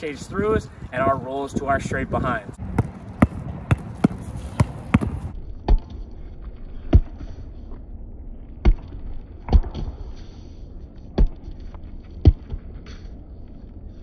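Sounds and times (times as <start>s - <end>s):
basketball bouncing on concrete: 2.6s - 5.8s.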